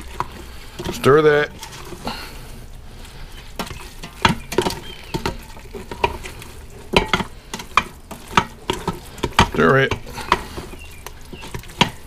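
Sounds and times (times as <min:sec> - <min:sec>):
spoon scraping metal pot: 0:00.0 - 0:12.0.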